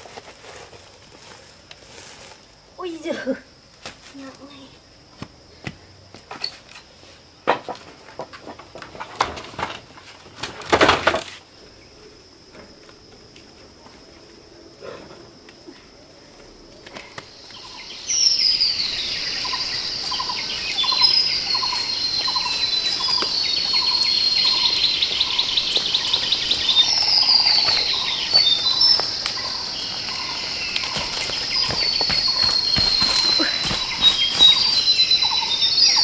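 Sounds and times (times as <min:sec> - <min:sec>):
birds whistling and trilling: 0:17.3 - 0:36.0.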